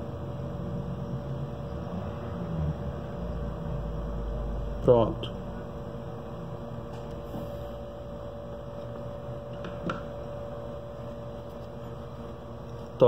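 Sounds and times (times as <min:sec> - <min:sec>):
electrical mains hum: 0:00.0 - 0:13.0.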